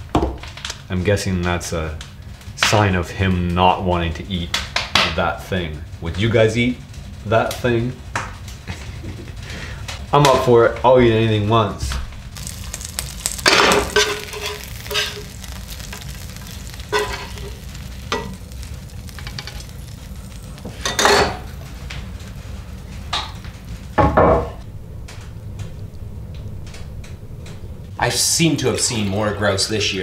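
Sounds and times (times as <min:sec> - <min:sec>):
meat sizzling in oil: 0:12.2 - 0:24.3.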